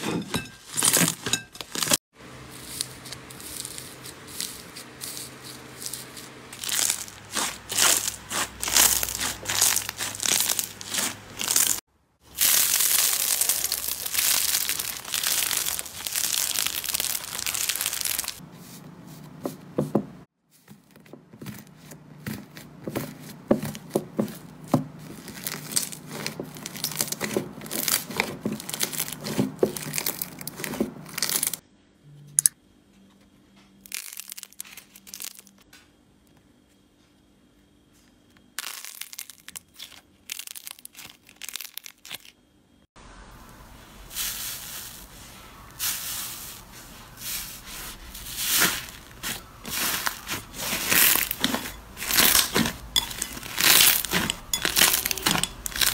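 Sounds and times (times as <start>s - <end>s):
soft squishing: 1.6s - 19.8s, 20.5s - 31.6s, 43.5s - 55.9s
crackling and popping: 6.0s - 18.4s, 38.6s - 42.4s, 48.5s - 55.9s
slime squeezed by fingers: 12.4s - 18.4s.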